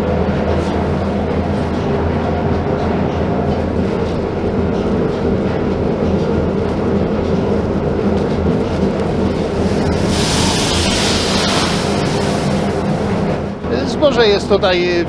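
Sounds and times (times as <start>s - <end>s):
machinery clatter: 8.2s - 13.4s
mill machinery droning: 8.7s - 13.5s.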